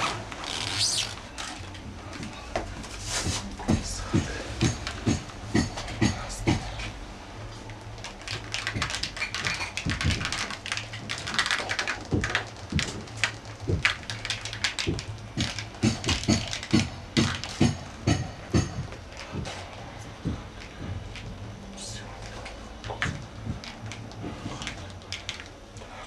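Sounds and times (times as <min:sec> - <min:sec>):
scuffling noise: 0:02.2 - 0:04.4.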